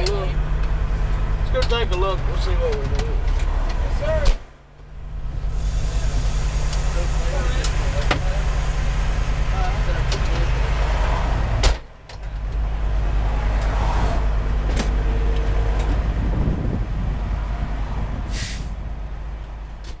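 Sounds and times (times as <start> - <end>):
diesel engine running: 0.0 - 20.0
passing traffic: 0.0 - 20.0
air hissing: 5.4 - 9.6, 18.3 - 18.8
cab door slamming: 11.5 - 12.5.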